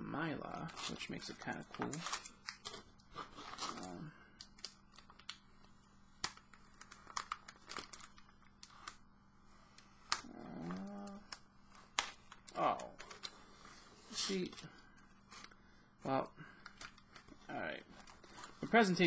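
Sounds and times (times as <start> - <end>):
plastic sleeve crinkling: 0.5 - 19.0
person humming: 10.2 - 11.4.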